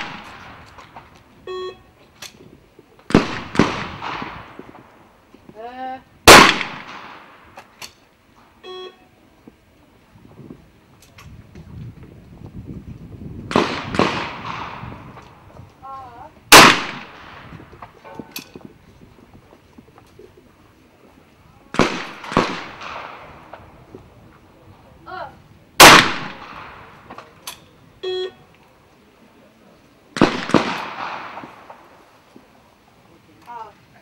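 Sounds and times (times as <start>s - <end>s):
shotgun shots echoing: 0.0s - 0.8s, 3.1s - 4.8s, 6.3s - 7.7s, 13.5s - 15.1s, 16.5s - 17.5s, 21.7s - 23.6s, 25.8s - 27.0s, 30.2s - 32.0s
short beep: 1.4s - 1.9s, 8.6s - 9.1s, 28.0s - 28.5s.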